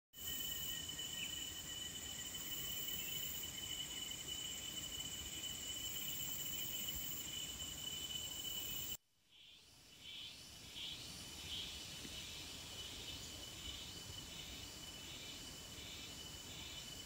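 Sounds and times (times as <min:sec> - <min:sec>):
high-pitched insect chorus: 0:00.2 - 0:17.0.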